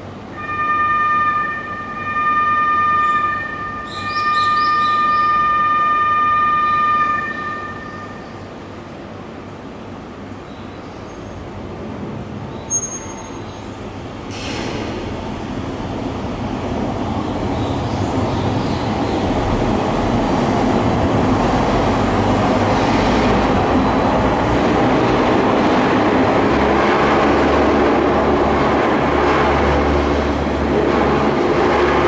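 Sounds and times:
cable car running noise: 11.1 - 32.0.

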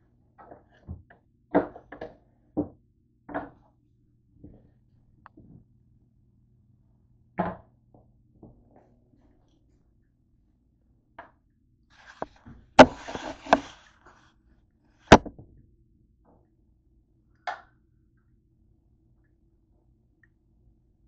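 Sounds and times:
scraping rustle: 12.0 - 14.2
plastic cutting board knocks: 12.8 - 13.7, 15.1 - 15.4.

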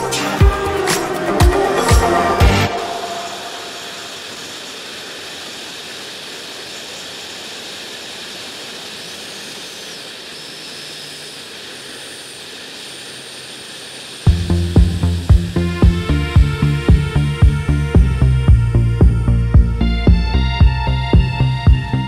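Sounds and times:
background music: 0.0 - 3.8, 14.3 - 22.0.

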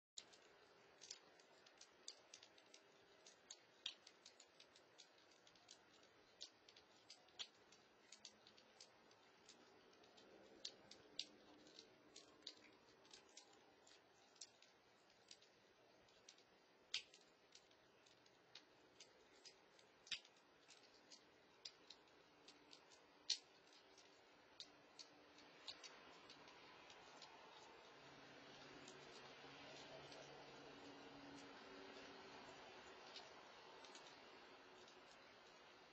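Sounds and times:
sharp irregular clicks: 0.2 - 35.9.

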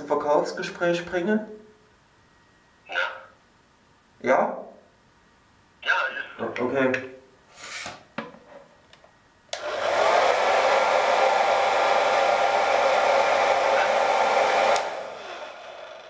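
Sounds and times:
hair dryer blowing: 9.5 - 16.0.

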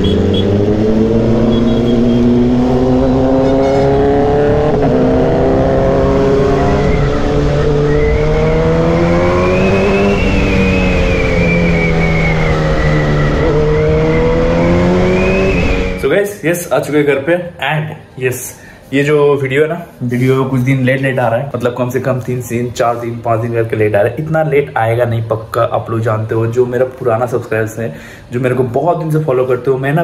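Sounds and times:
motorcycle engine revving: 0.0 - 16.0.

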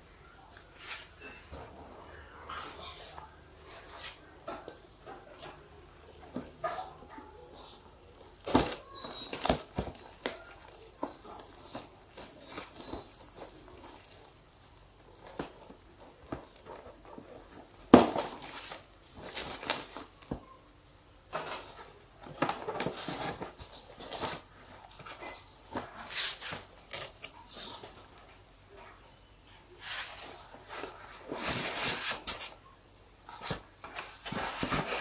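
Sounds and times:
cardboard ripping and rustling: 8.4 - 14.3, 29.8 - 32.6, 33.4 - 35.0.

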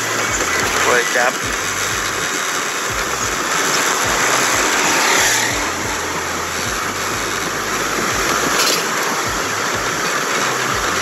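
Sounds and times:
motorcycle passing: 2.4 - 8.5
low thumps: 2.9 - 8.6.

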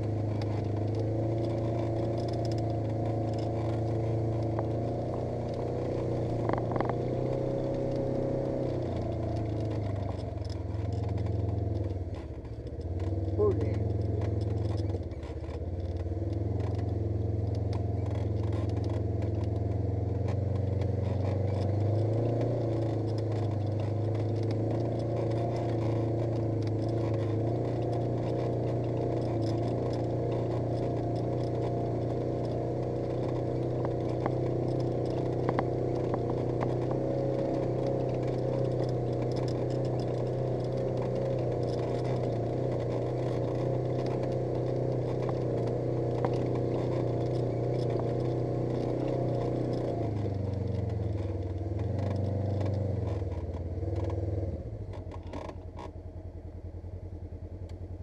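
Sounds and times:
vehicle engine running: 0.0 - 58.0.

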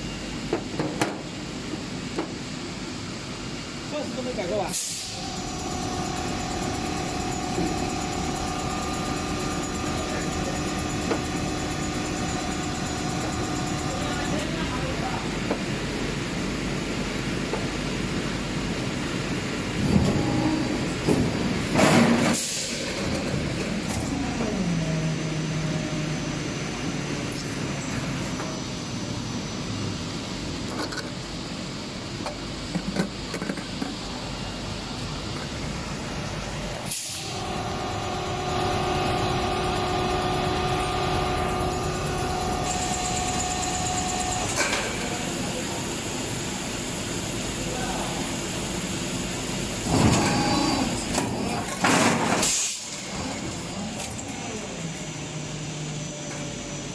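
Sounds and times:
factory machinery droning: 0.0 - 56.9
machinery drone: 4.8 - 15.3, 35.9 - 48.4.

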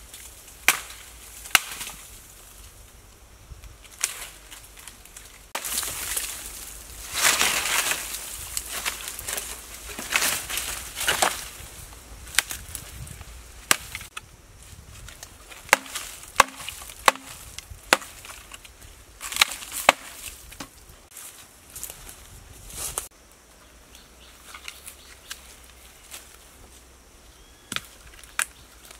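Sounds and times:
rotten wood cracking: 3.8 - 14.2, 14.9 - 20.9, 27.7 - 28.9
dry leaves crunching underfoot: 3.8 - 23.1.

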